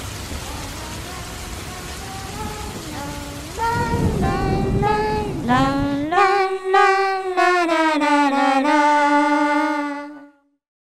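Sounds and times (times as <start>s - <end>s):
rain hiss: 0.0s - 9.5s
slow high melody: 1.0s - 10.5s.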